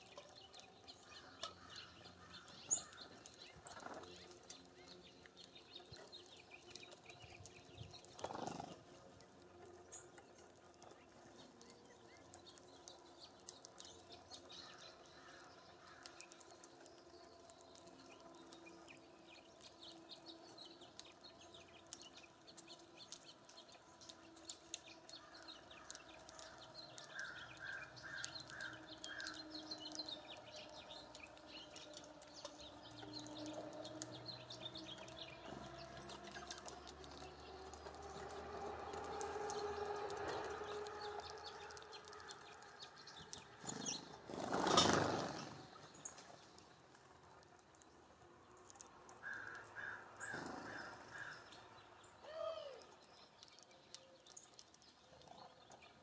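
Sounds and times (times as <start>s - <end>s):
finches pecking at seed: 9.9s - 46.7s.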